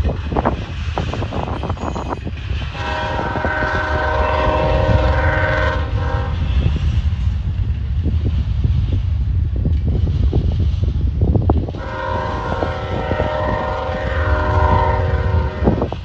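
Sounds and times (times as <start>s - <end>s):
diesel locomotive engine rumble: 0.0s - 16.0s
train wheels clicking over rails: 0.0s - 16.0s
locomotive air horn: 2.7s - 6.5s, 11.8s - 15.9s.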